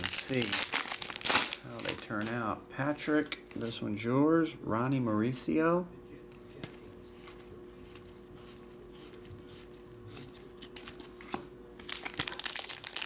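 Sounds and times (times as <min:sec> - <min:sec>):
cards rustling: 0:00.0 - 0:02.4, 0:06.7 - 0:13.0
foil wrappers crinkling: 0:00.0 - 0:02.4, 0:11.8 - 0:13.0.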